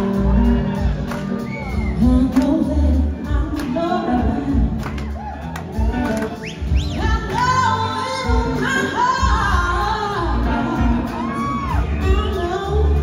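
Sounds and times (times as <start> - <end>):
live rock band playing: 0.0 - 13.0
woman singing: 1.8 - 5.2, 6.8 - 13.0.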